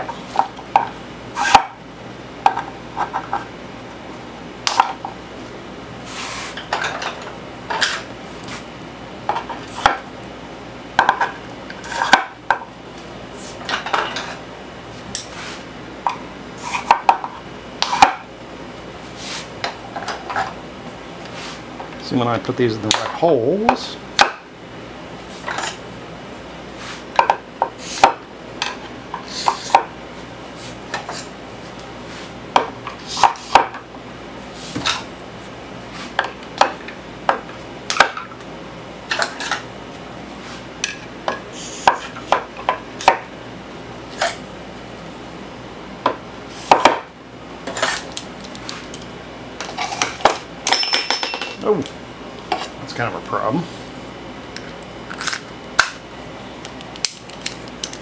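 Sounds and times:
metallic ring: 50.6 - 51.6.

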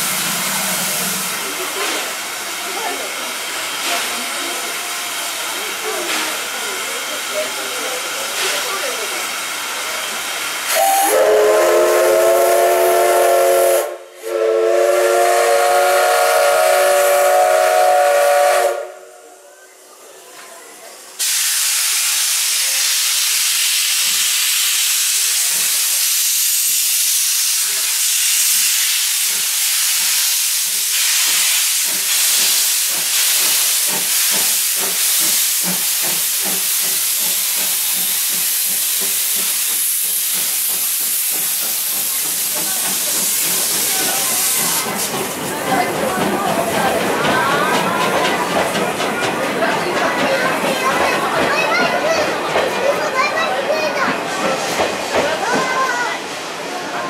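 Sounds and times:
steam locomotive exhaust chuffs: 0.0 - 19.3, 21.2 - 52.8
steam hissing: 0.0 - 20.0, 20.7 - 57.0
steam whistle blowing: 10.7 - 19.4.

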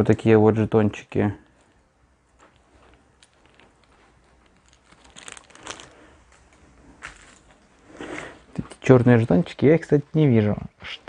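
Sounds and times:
cardboard tokens rustling and clicking: 1.5 - 7.7.

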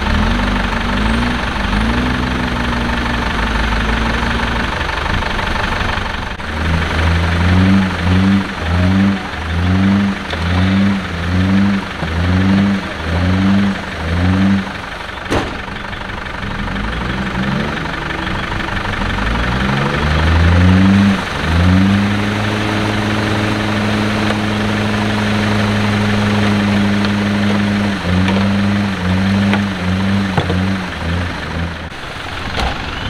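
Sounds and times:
car engine revving: 0.0 - 33.0.

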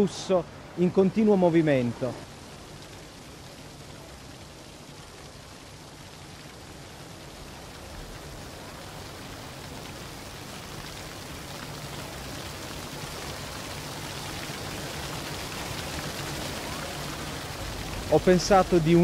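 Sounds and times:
fountain water splashing over stone: 0.0 - 19.0.

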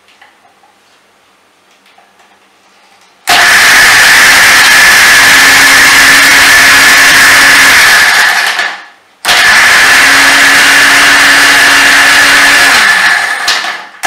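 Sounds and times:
electric mixer grinder running: 3.3 - 14.0.

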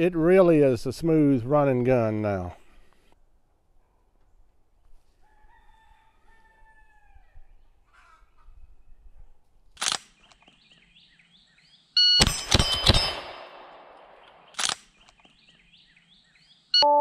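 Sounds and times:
rooster crowing: 5.2 - 7.5
rapid rifle gunshots: 12.2 - 14.7
sharp snap: 13.9 - 15.3
short electronic beep: 16.8 - 17.0.

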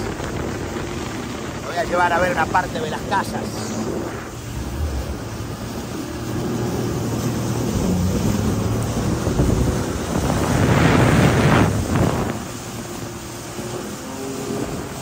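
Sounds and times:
jet ski engine: 0.0 - 15.0
splashing spray: 0.0 - 15.0
water rushing past hull: 0.0 - 15.0
wind buffeting microphone: 0.0 - 15.0.

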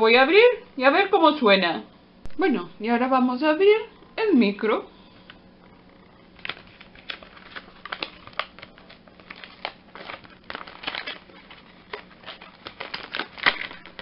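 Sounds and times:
plastic packaging crinkling: 6.2 - 14.0.

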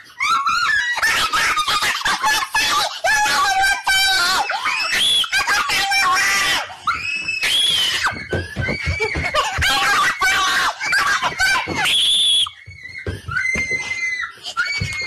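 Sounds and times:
high-pitched voice screaming and wailing: 0.2 - 11.9.

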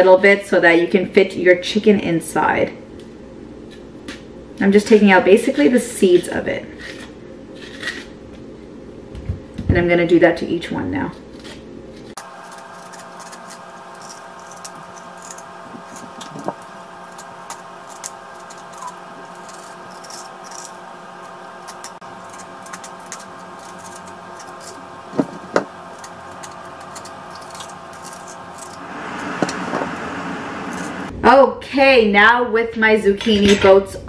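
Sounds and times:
metal spoon scraping zucchini: 6.2 - 8.1
steady humming tone: 11.2 - 31.4.

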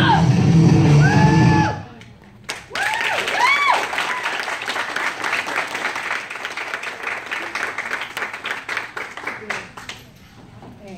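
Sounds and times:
short cheers: 0.9 - 2.0, 2.7 - 4.6
small group clapping: 2.0 - 10.2.

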